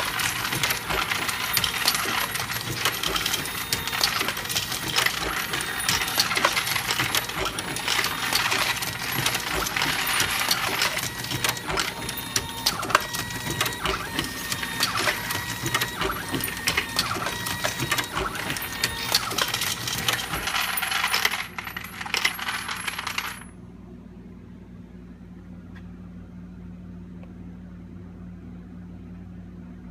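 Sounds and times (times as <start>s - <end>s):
metallic clatter of reloading press: 0.0s - 23.4s.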